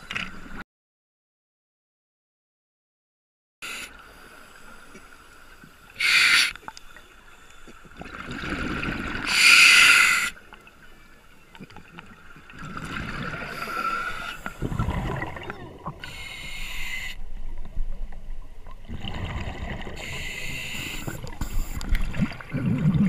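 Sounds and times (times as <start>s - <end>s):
rushes of air and bubbles: 8.0s - 9.7s, 12.5s - 17.9s, 18.5s - 23.0s
diver breathing through regulator: 13.4s - 14.6s, 16.0s - 17.2s, 20.0s - 22.0s
low bubbling: 14.6s - 16.0s, 21.9s - 23.0s.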